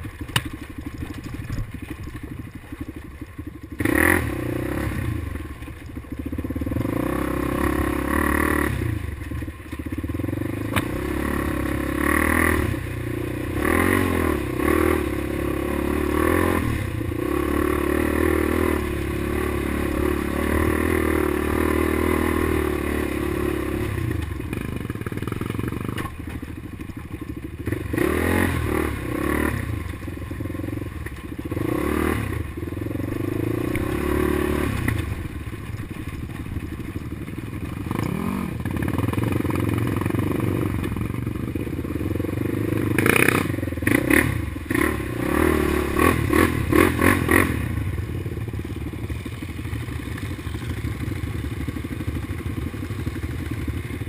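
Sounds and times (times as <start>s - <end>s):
quad engine revving: 3.8s - 5.5s, 6.2s - 9.2s, 10.0s - 26.2s, 27.6s - 35.4s, 37.6s - 48.2s.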